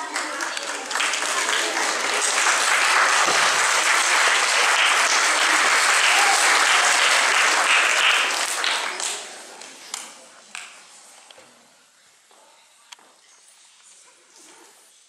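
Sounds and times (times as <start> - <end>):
audience applauding: 0.0 - 9.7
single clap: 0.1 - 10.7.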